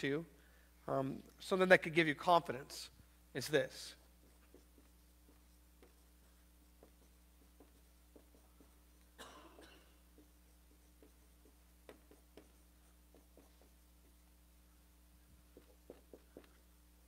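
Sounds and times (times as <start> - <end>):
marker strokes on whiteboard: 3.4 - 17.0.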